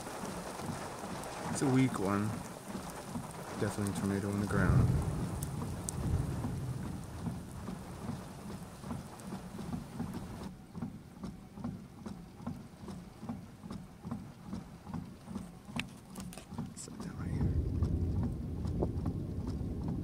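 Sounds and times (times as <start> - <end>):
low regular pulsing: 0.0 - 15.8, 16.5 - 20.0
rain falling: 0.0 - 20.0
low rumble: 4.1 - 9.0, 17.1 - 20.0.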